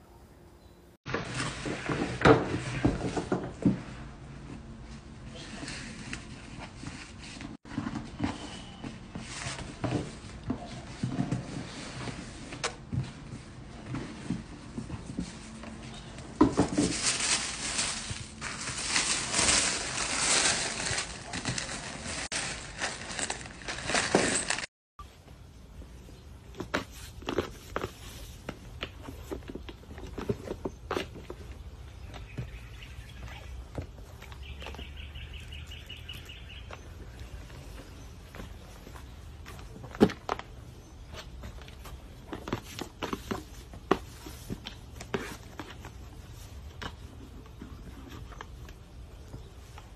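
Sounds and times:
tissue paper rustling: 16.4s - 24.7s.

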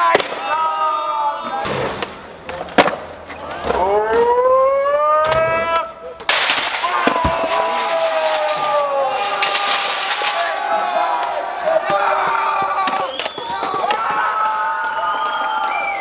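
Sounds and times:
spectators yelling: 0.0s - 2.2s, 3.3s - 16.0s
crowd cheering: 0.0s - 2.6s, 3.3s - 16.0s
skateboard hitting concrete: 1.6s - 3.8s.

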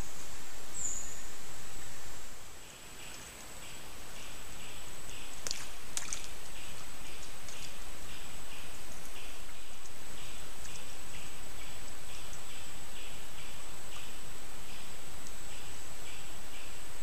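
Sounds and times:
background hiss: 0.0s - 17.0s
insects calling: 0.0s - 17.0s
sharp ticks or small splashes: 5.3s - 12.6s.

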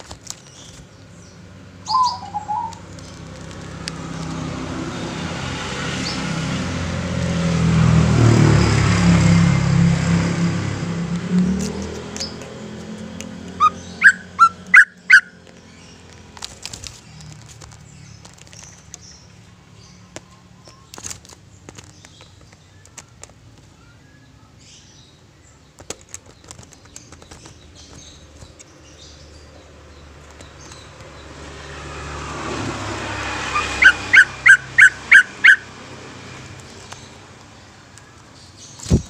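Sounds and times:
bird chirping: 0.2s - 3.4s, 11.4s - 16.3s, 33.4s - 39.0s
loud sharp bird notes: 1.8s - 2.8s, 13.6s - 15.4s, 33.5s - 35.7s.

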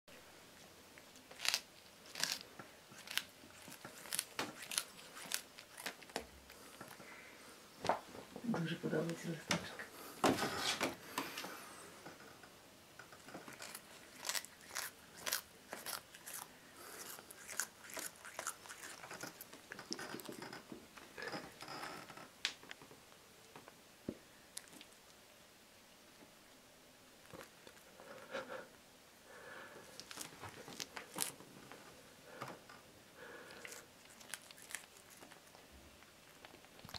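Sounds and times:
cat chewing a leaf: 1.0s - 7.3s, 13.2s - 20.6s, 24.5s - 25.1s, 27.2s - 28.4s, 29.8s - 31.5s, 33.2s - 36.9s.

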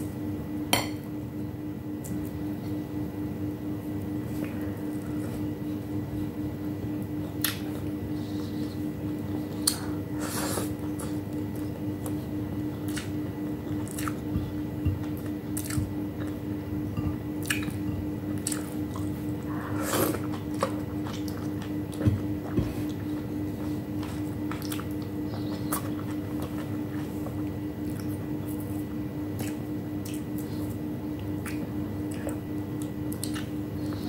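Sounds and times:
steady hum: 0.0s - 34.0s
person chewing food: 7.2s - 34.0s
lip smacks: 31.4s - 33.9s.

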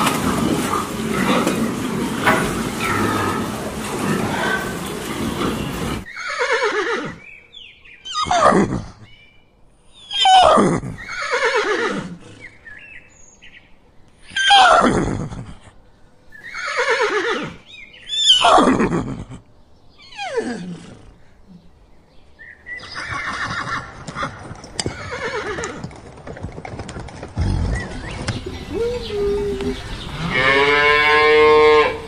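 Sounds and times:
horses whinnying: 0.0s - 7.3s, 10.1s - 12.5s, 16.4s - 17.6s, 18.2s - 19.4s, 22.8s - 32.0s.

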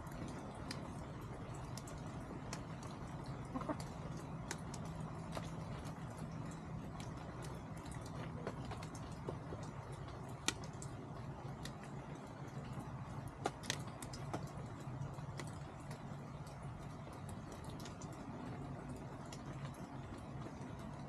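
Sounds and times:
chickens pecking and scratching: 3.4s - 5.8s.

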